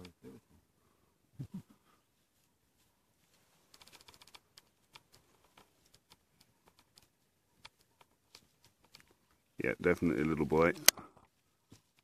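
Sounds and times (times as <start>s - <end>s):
faint scattered clicks: 3.3s - 12.0s.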